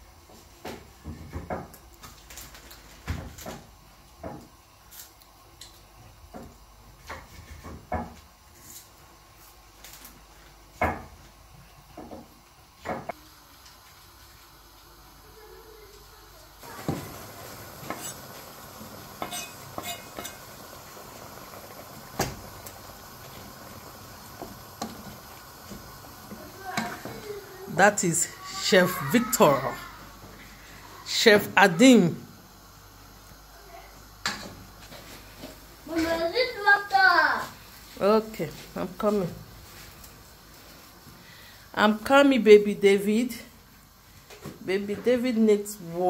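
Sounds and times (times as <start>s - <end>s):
sizzling: 1.3s - 46.0s
wooden spoon stirring in pot: 16.6s - 29.5s.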